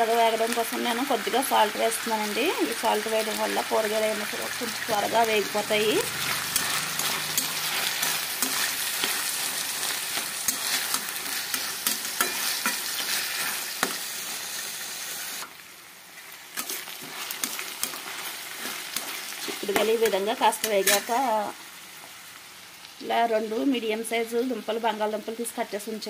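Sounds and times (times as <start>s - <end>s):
vegetables sizzling in oil: 0.0s - 26.0s
spatula scraping a pan: 6.2s - 14.6s, 16.2s - 21.2s.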